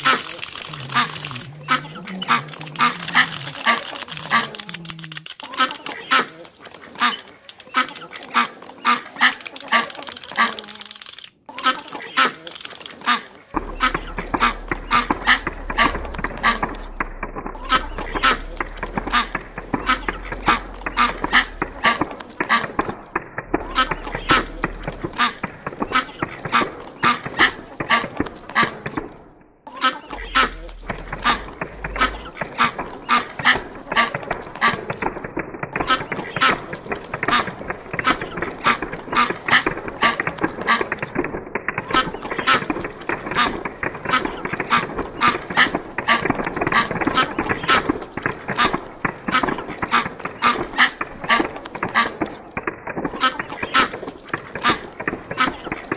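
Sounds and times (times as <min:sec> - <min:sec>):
clockwork toys clicking: 0:00.0 - 0:08.4, 0:09.1 - 0:29.0.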